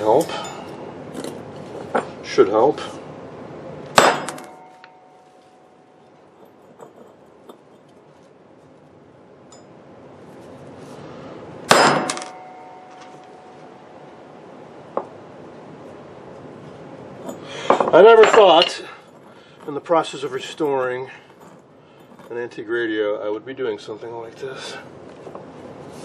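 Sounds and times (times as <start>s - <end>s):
faint metal clinks: 0.1s - 1.4s, 9.5s - 9.8s, 17.2s - 22.4s.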